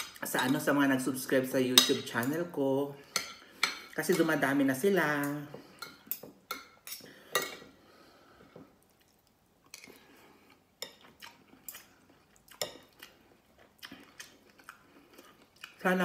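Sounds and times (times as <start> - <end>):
cutlery clinking on dishes: 1.8 - 2.4, 5.2 - 7.7
soft chewing: 5.5 - 16.0.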